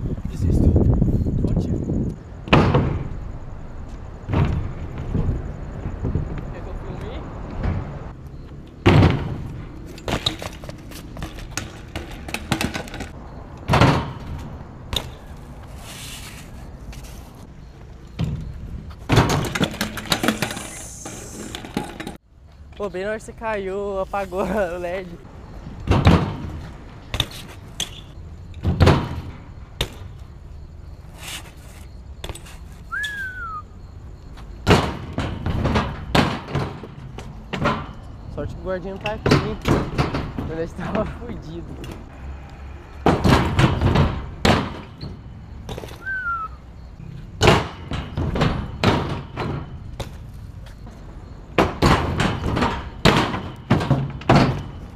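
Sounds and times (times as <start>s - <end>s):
bike landing thud: 2.5s - 3.2s, 4.3s - 5.5s, 8.8s - 13.1s, 13.7s - 15.3s, 18.2s - 22.2s, 25.9s - 30.2s, 34.6s - 38.0s, 43.0s - 45.1s, 45.7s - 46.4s, 47.4s - 50.3s, 51.5s - 54.8s
bike clicks and rattles: 8.2s - 22.9s, 25.8s - 30.3s
rising and falling whistle: 32.9s - 33.8s, 46.0s - 46.6s.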